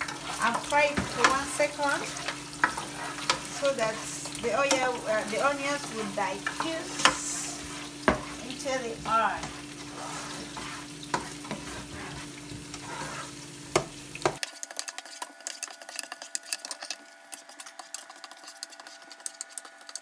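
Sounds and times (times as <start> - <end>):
onions sizzling in oil: 0.0 - 20.0.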